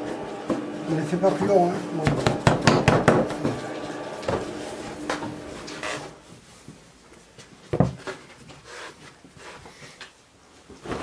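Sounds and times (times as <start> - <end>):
dough thumping on wooden table: 2.1 - 3.4.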